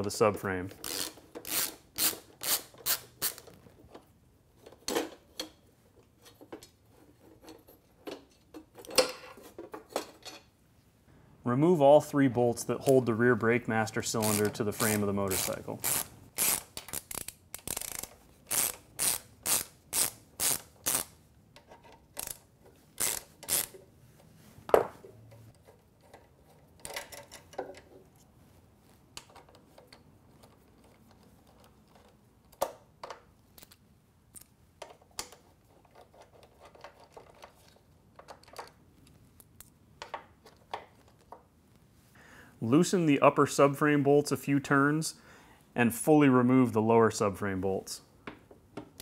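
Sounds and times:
hand ratchet clicking: 0:00.8 - 0:03.5, 0:14.2 - 0:21.2, 0:22.2 - 0:22.4, 0:23.0 - 0:23.8.

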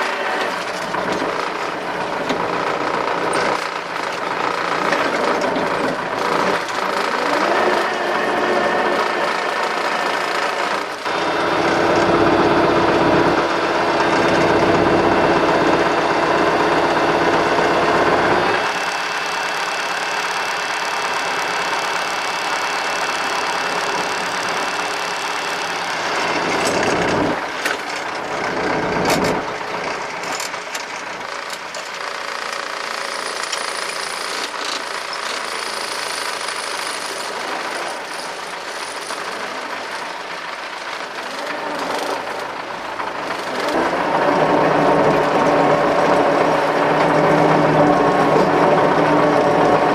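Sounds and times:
tractor diesel engine running: 0:00.0 - 0:49.9.

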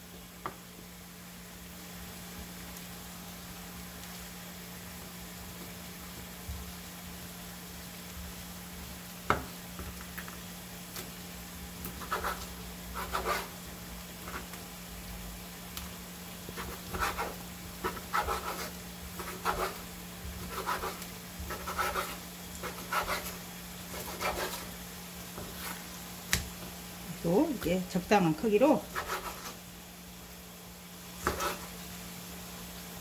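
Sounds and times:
knife cutting on wooden board: 0:12.0 - 0:13.5, 0:16.6 - 0:19.8, 0:20.4 - 0:24.7, 0:28.9 - 0:29.6, 0:31.2 - 0:31.7.

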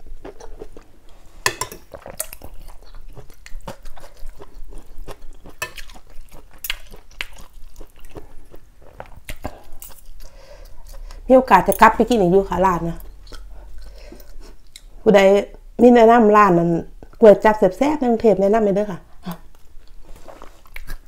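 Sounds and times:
person chewing: 0:00.0 - 0:12.3, 0:12.9 - 0:15.0, 0:19.2 - 0:21.0.

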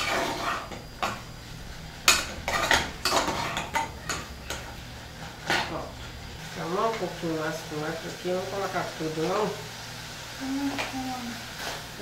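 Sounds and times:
metal spoon scraping cooking pot: 0:02.1 - 0:04.6.

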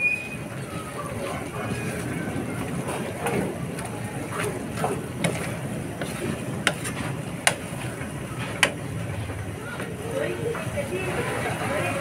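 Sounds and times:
spatula scraping frying pan: 0:05.0 - 0:07.8.

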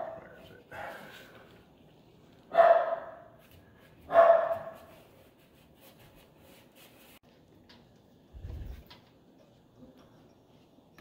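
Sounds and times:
dog barking: 0:00.0 - 0:01.1, 0:02.5 - 0:03.4, 0:04.1 - 0:04.8.

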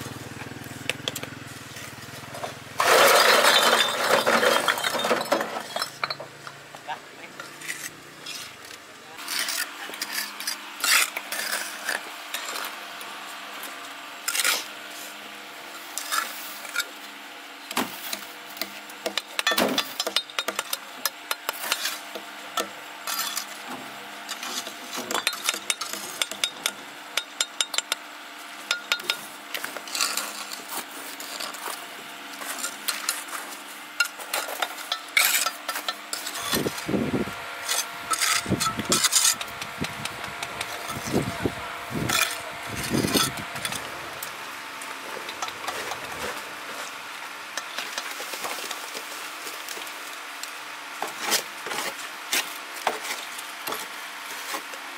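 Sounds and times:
metal tools scraping and clinking: 0:02.8 - 0:06.6, 0:34.0 - 0:36.9, 0:37.6 - 0:39.6, 0:40.4 - 0:44.3.

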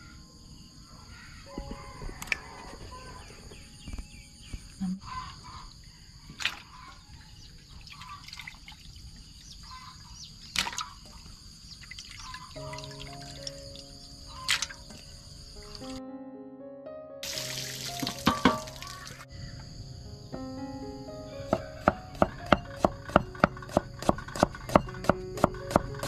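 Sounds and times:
high insect drone: 0:00.0 - 0:16.0, 0:17.2 - 0:26.0
sharp knocks: 0:18.0 - 0:18.8, 0:21.5 - 0:26.0.

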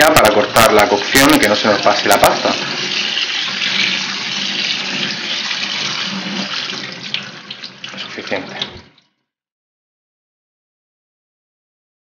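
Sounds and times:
tap water pouring into colander: 0:00.0 - 0:09.2.

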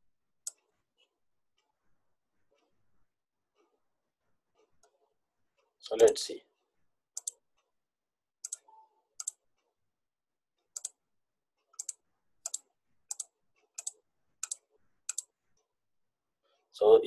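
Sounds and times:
computer mouse clicks: 0:07.2 - 0:07.4, 0:08.4 - 0:09.4, 0:10.7 - 0:11.0, 0:11.6 - 0:15.3.

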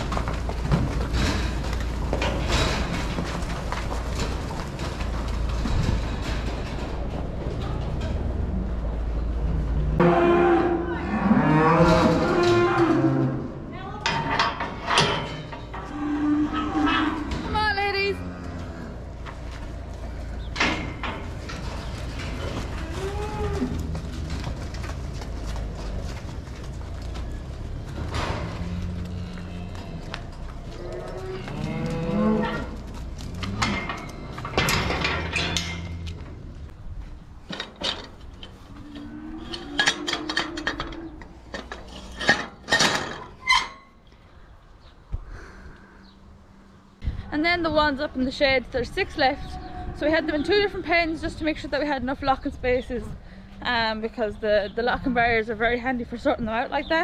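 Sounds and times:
cow mooing: 0:10.0 - 0:13.4.

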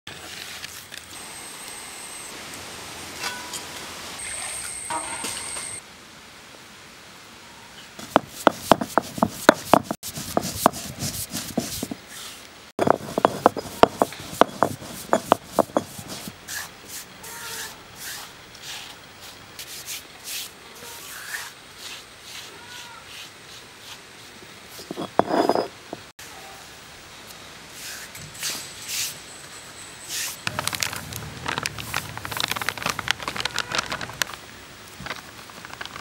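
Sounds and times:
stone roller grinding seeds: 0:08.0 - 0:12.0, 0:12.8 - 0:16.4, 0:24.8 - 0:26.0.

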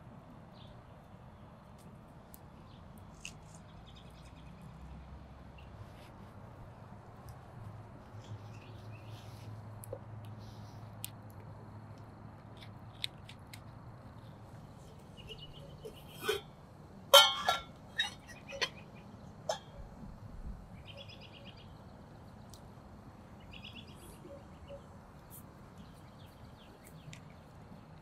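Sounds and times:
birds singing trilled phrases: 0:17.9 - 0:19.9, 0:20.8 - 0:21.8.

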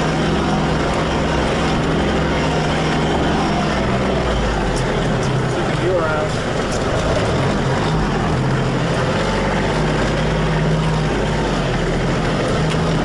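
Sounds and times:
tractor engine droning: 0:00.0 - 0:13.0.

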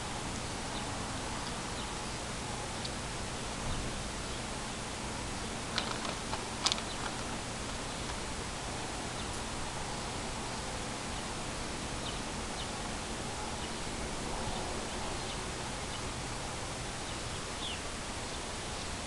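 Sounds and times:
outdoor background hiss: 0:00.0 - 0:19.0
faint bird chirps: 0:17.0 - 0:19.0.

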